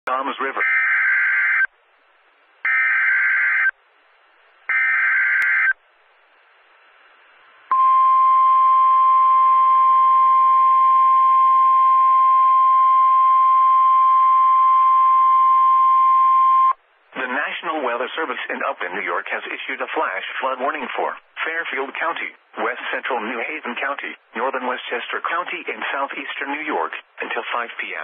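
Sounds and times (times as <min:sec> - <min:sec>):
steady alarm tone: 0:02.7 - 0:03.7, 0:04.7 - 0:05.8.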